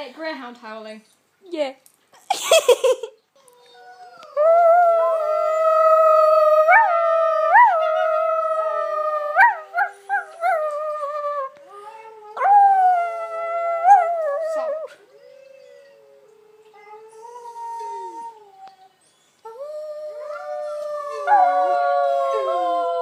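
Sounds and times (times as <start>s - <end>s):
long drawn-out howl: 3.7s - 18.6s, 19.5s - 23.0s.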